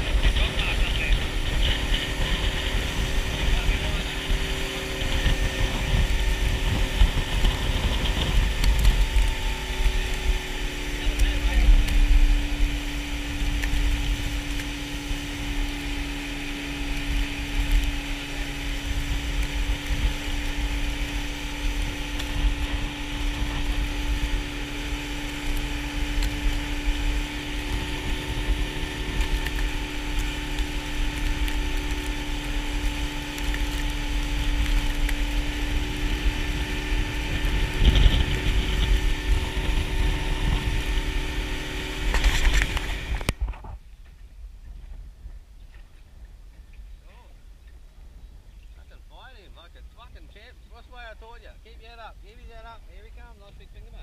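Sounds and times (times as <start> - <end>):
boat motor running: 0.0 - 54.0.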